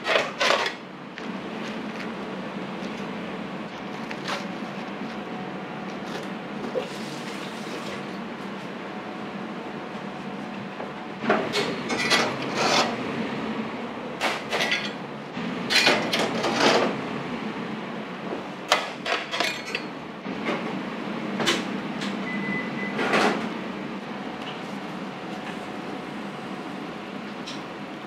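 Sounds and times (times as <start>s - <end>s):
tongs and baking trays clattering: 0.0s - 0.8s, 11.5s - 12.9s, 18.7s - 19.9s
steady low hum: 0.0s - 14.2s.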